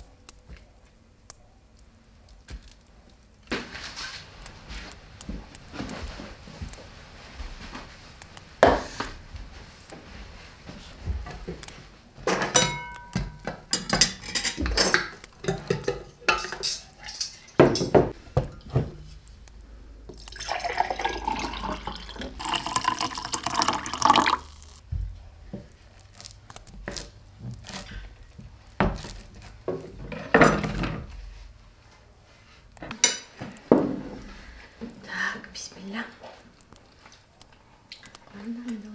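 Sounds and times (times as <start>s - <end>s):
dishes and glassware clinking: 12.3s - 18.8s, 32.9s - 33.9s
liquid being poured: 20.1s - 24.8s.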